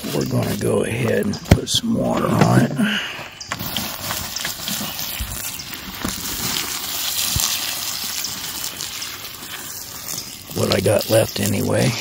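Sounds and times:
water pouring onto ashes: 0:03.5 - 0:12.0.

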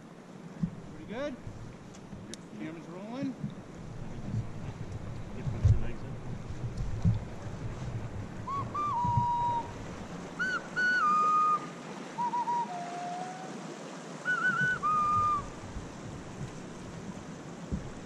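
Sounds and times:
hiss of moving water: 0:07.3 - 0:18.0
person whistling a tune: 0:08.5 - 0:09.7, 0:10.4 - 0:13.4, 0:14.3 - 0:15.5.

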